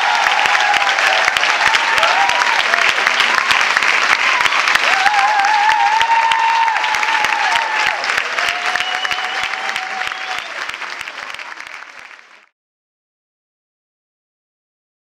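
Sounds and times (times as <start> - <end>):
audience whooping: 0.0 - 11.3
audience applauding: 0.0 - 12.6.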